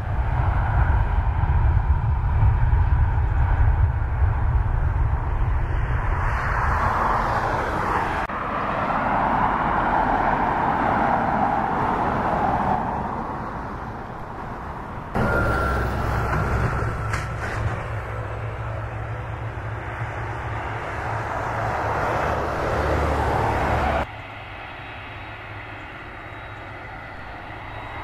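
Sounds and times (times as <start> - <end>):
jet engines roaring: 0.0 - 28.0
wind rumbling on microphone: 0.0 - 28.0
thin engine whine: 15.1 - 28.0.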